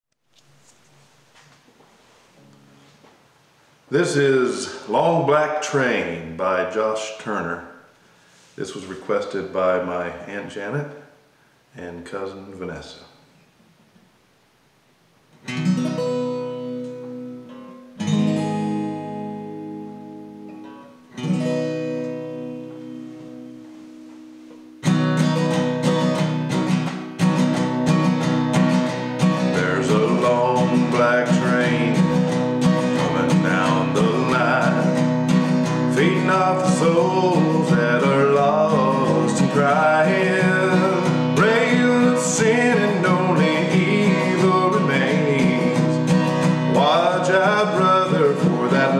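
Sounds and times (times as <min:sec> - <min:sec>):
acoustic guitar strumming: 0:02.3 - 0:03.2, 0:15.3 - 0:48.9
man singing: 0:03.9 - 0:07.6, 0:29.3 - 0:48.9.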